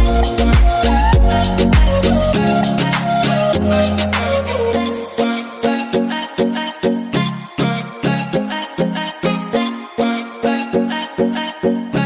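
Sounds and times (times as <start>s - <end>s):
music with steady beat: 0.0s - 9.6s.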